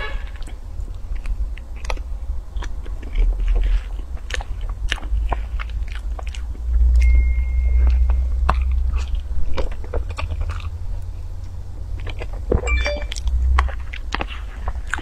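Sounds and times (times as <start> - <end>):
chewing and biting cake: 0.3 - 15.0
thin high tone: 12.6 - 13.3.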